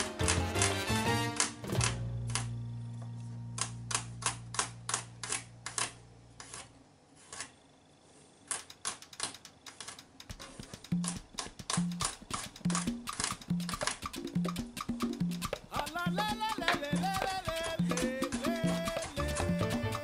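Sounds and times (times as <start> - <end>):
background music: 0.0 - 4.7, 10.9 - 20.0.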